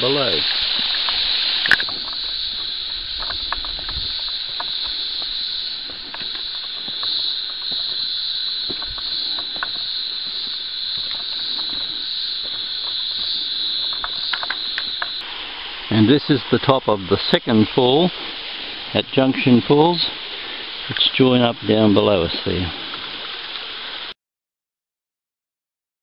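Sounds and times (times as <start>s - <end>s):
twigs crackling: 0.0s - 15.5s
footsteps: 0.0s - 21.2s
insects buzzing: 0.0s - 24.1s.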